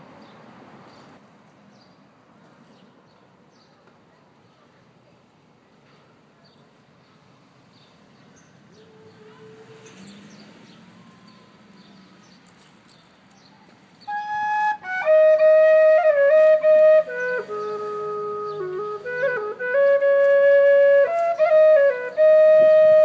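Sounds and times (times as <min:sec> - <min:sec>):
woodwind melody: 0:14.1 - 0:23.0.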